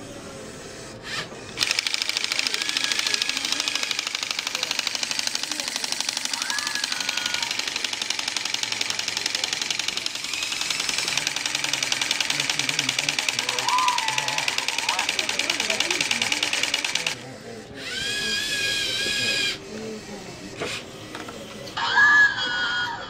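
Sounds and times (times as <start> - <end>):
toy air compressor clattering: 1.1 - 17.2, 17.8 - 21.7.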